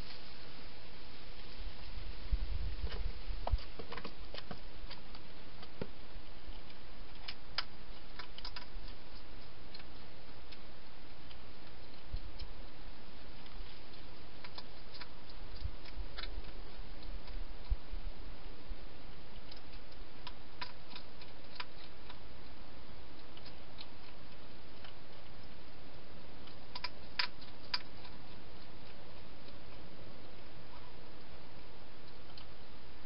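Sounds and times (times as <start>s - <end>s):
steady hiss: 0.0s - 33.0s
small clicks and ticks: 2.8s - 17.8s, 18.4s - 33.0s.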